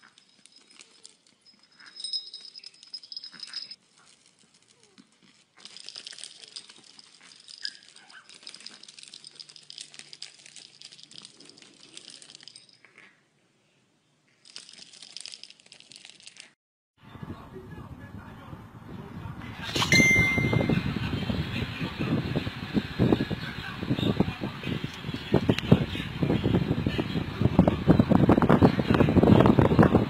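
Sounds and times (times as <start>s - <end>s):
toy rattle shaken: 0.0s - 5.0s, 5.6s - 12.9s, 14.4s - 16.6s
brief high whistle: 19.7s - 20.8s.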